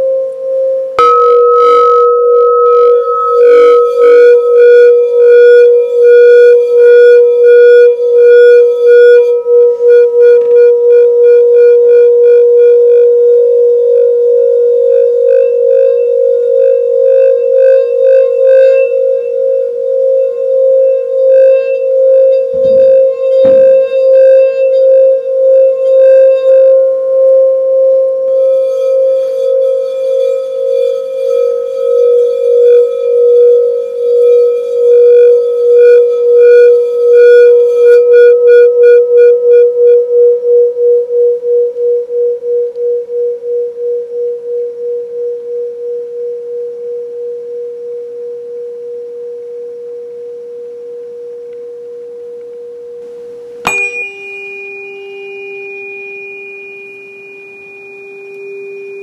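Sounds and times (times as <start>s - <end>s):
crystal singing bowl ringing: 1.0s - 11.6s, 12.3s - 38.3s, 53.6s - 59.0s.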